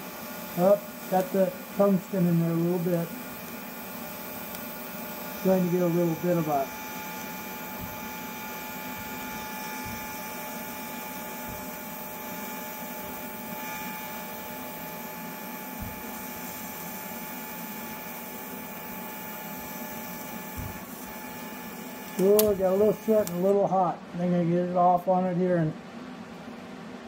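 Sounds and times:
welding arc hissing: 0.0 - 23.6.

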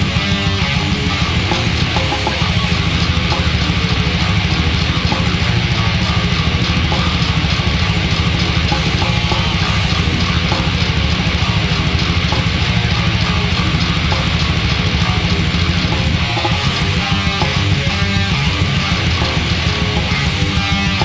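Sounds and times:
distorted electric guitars: 0.0 - 21.0
rapid drumming: 0.0 - 21.0.

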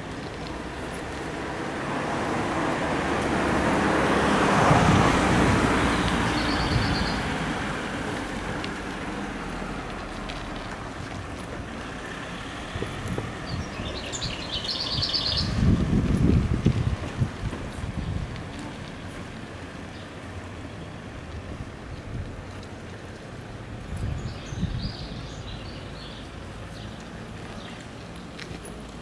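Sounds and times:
car driving past: 1.4 - 10.7
wind buffeting microphone: 2.3 - 10.0, 12.6 - 19.2, 21.2 - 25.8
small birds chirping: 5.8 - 7.4, 12.9 - 15.7, 23.1 - 29.0.

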